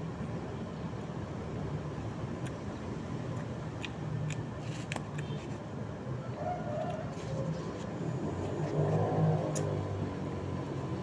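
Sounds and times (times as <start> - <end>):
low rumble of traffic: 0.0 - 11.0.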